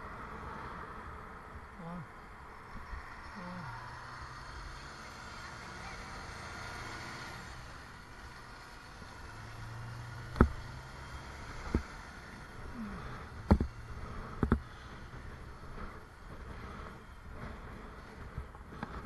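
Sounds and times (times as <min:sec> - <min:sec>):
low bus engine hum: 0:00.0 - 0:19.0
wind and road noise: 0:00.0 - 0:19.0.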